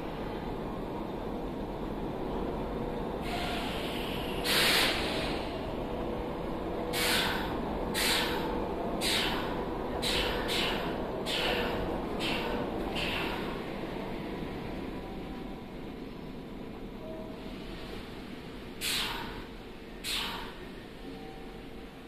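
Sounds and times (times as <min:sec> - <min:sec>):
train humming: 0:00.0 - 0:22.0
compressed air hissing: 0:03.2 - 0:05.6, 0:06.9 - 0:13.6, 0:18.8 - 0:20.6.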